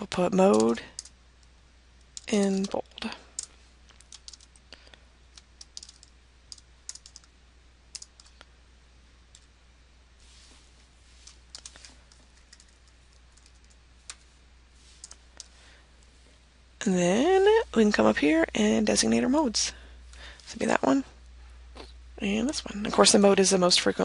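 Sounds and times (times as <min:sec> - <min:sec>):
computer keyboard typing: 0:00.4 - 0:01.2, 0:02.1 - 0:04.6, 0:05.3 - 0:07.3, 0:07.9 - 0:08.4, 0:11.2 - 0:14.2, 0:15.0 - 0:15.5.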